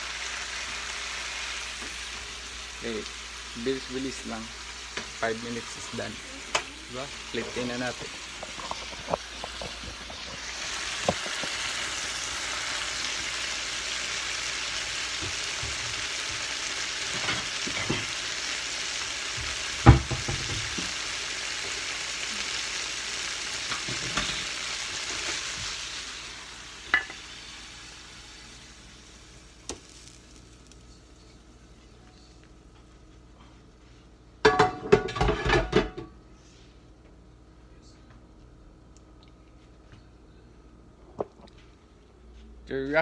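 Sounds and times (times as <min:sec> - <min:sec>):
shrimp sizzling in a frying pan: 0:00.0 - 0:31.9
utensils knocking on pan: 0:19.8 - 0:20.9, 0:26.9 - 0:27.2, 0:34.4 - 0:36.1.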